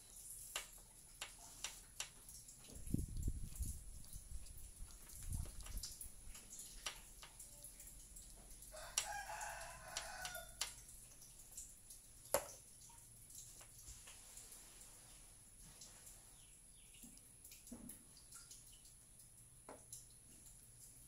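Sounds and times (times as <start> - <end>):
rooster crowing: 8.7 - 10.6.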